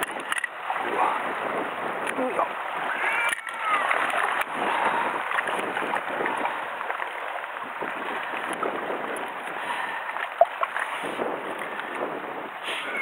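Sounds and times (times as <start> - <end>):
sea washing on rocky shore: 0.0 - 13.0.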